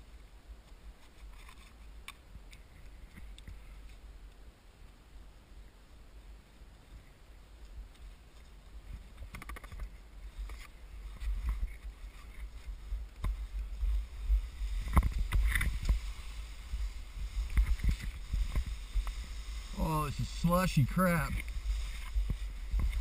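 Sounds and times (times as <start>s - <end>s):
wind rumble on microphone: 6.7s - 23.0s
skis scraping through slushy snow: 10.0s - 23.0s.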